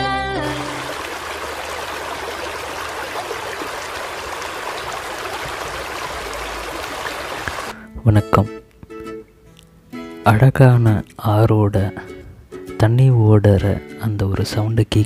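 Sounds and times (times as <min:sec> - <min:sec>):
music: 0:00.0 - 0:01.1, 0:07.7 - 0:15.0
river water rushing over rapids: 0:00.4 - 0:07.8.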